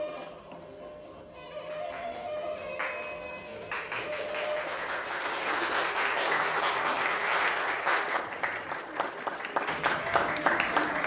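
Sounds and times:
people applauding: 2.8 - 11.0.

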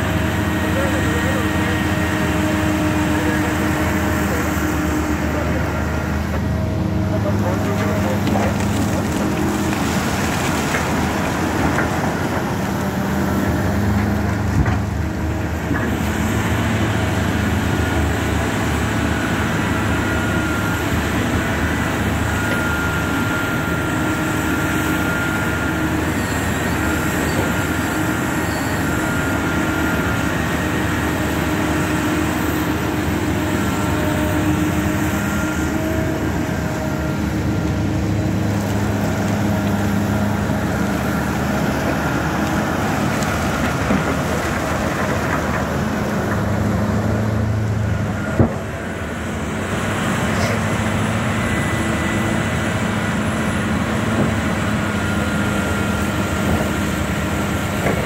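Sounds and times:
excavator engine running: 0.0 - 58.0
high hydraulic whine: 11.7 - 44.2.

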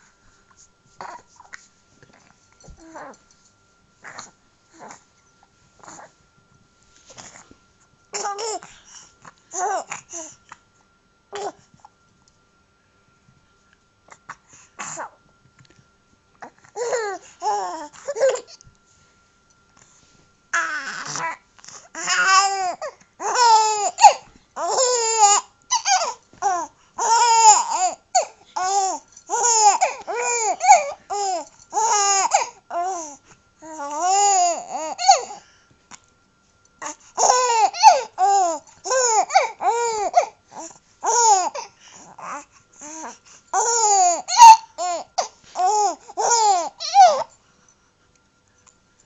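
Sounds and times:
baby laughing and babbling: 8.2 - 8.7, 9.5 - 10.3, 16.8 - 18.6, 22.0 - 35.4, 36.8 - 47.3.

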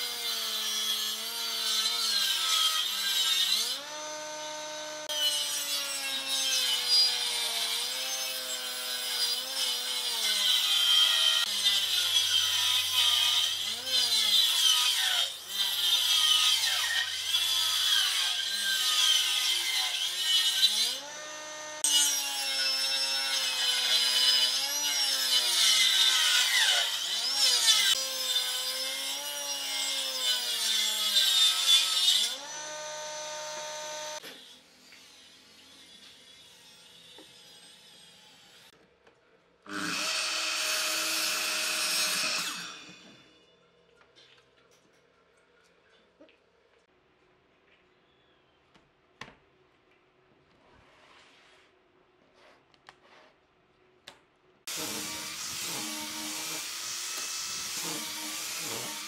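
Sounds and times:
jointer-planer cutting wood: 2.6 - 12.2, 20.5 - 34.2, 54.7 - 59.0.

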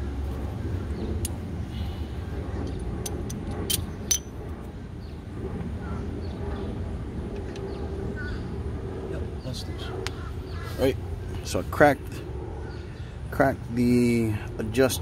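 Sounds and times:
steady low rumble: 0.0 - 15.0
wrench clicking and clinking: 3.0 - 4.3.

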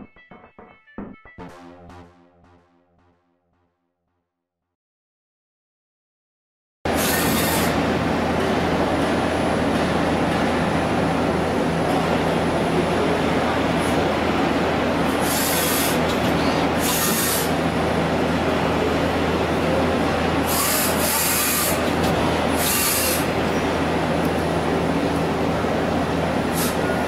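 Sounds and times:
lathe humming and rumbling: 6.9 - 27.0.

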